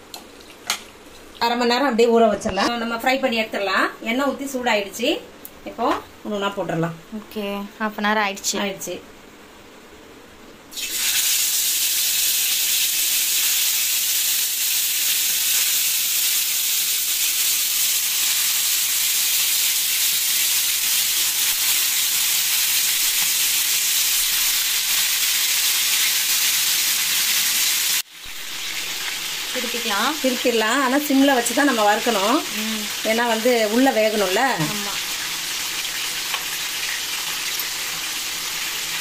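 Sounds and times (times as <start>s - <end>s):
chicken sizzling in oil: 10.7s - 39.0s.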